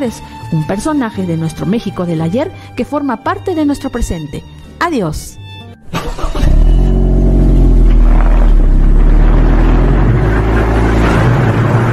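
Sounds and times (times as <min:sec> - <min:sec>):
motor vehicle engine running: 0:06.0 - 0:11.9.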